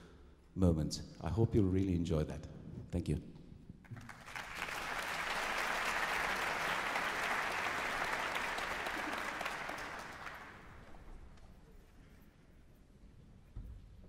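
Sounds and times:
audience applauding: 0:03.9 - 0:11.1.

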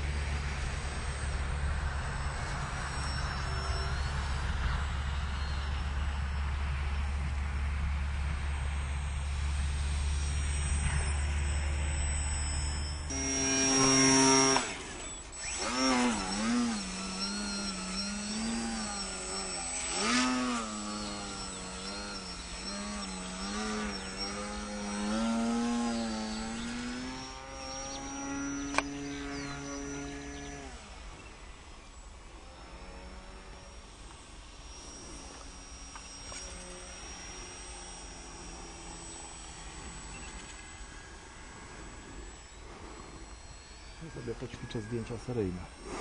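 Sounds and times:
low steady rumble: 0:00.0 - 0:46.0
model plane motor whining: 0:00.0 - 0:46.0
sharp click: 0:28.6 - 0:28.9.

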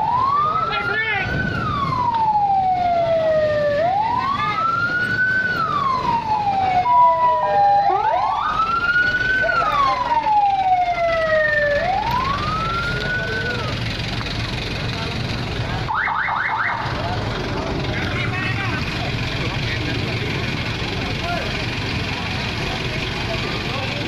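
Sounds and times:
fainter second siren: 0:00.0 - 0:13.7
fire engine siren wailing: 0:00.0 - 0:24.0.

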